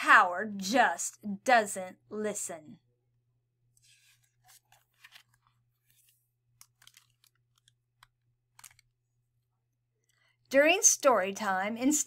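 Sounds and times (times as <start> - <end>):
book page turning: 3.8 - 9.1.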